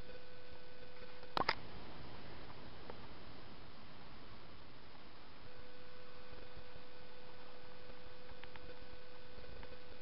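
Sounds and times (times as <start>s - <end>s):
steady humming tone: 0.0s - 10.0s
sharp clicks: 1.2s - 1.6s.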